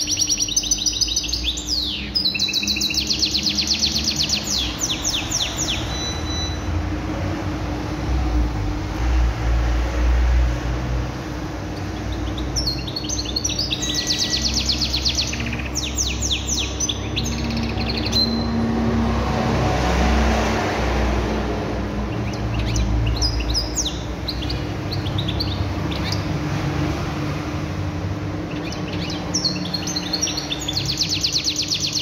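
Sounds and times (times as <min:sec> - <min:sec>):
canary singing trills: 0:00.0 - 0:06.8, 0:11.7 - 0:19.1, 0:21.9 - 0:32.0.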